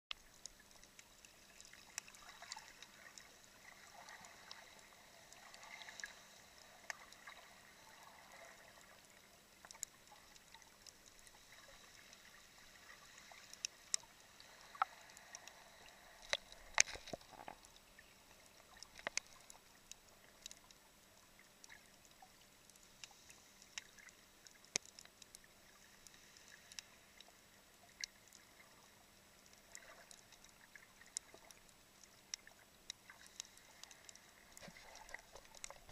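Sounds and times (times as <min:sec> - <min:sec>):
faint underwater hiss: 0:00.2 - 0:35.9
sharp underwater clicks: 0:09.6 - 0:20.8, 0:21.6 - 0:27.3, 0:29.4 - 0:35.9.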